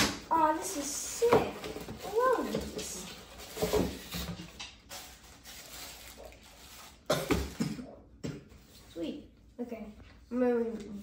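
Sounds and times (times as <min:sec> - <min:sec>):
paper and cardboard box rustling: 0:00.6 - 0:07.1.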